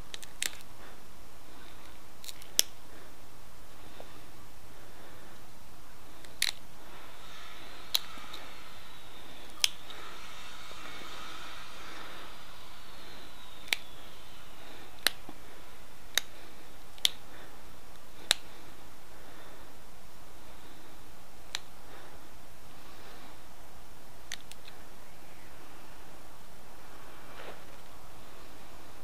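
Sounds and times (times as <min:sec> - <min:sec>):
stone flaking sharp clicks: 0:00.1 - 0:00.7, 0:01.7 - 0:02.8, 0:06.2 - 0:06.7, 0:09.4 - 0:10.1, 0:13.0 - 0:18.6, 0:24.2 - 0:24.8.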